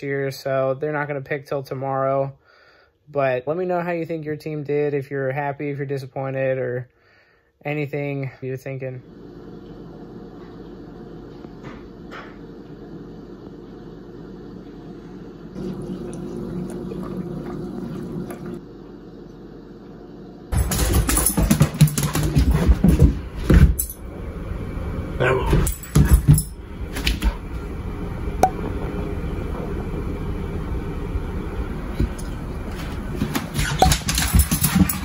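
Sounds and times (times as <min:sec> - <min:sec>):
coffee pouring into a ceramic mug: 0:15.6 - 0:18.6.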